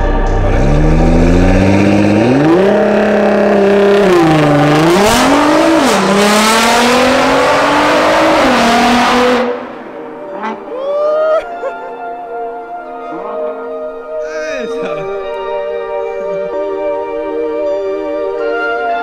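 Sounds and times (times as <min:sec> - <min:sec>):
car engine revving: 0:00.0 - 0:10.8.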